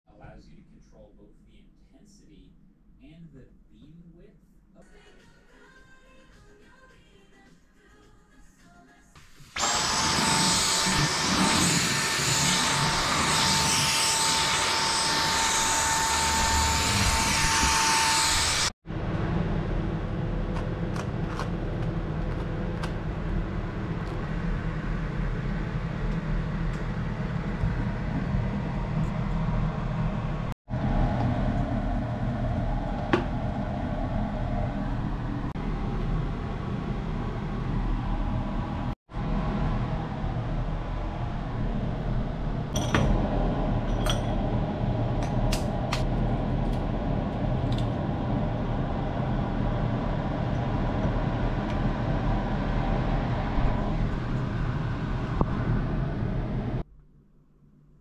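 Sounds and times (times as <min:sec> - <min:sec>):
vacuum cleaner whining: 0:09.4 - 0:18.7.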